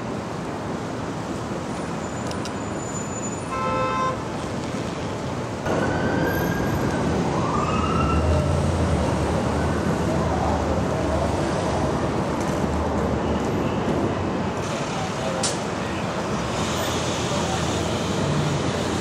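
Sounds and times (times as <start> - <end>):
street traffic noise: 0.0 - 19.0
car horn honk: 3.5 - 4.2
siren wailing: 5.7 - 8.6.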